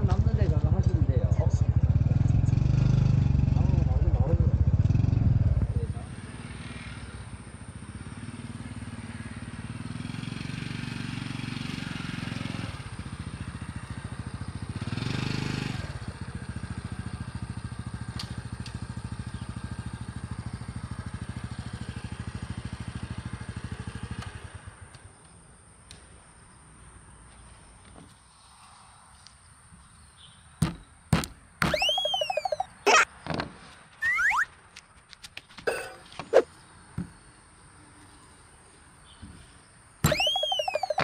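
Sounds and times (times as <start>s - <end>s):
motorcycle engine running: 0.1s - 6.0s.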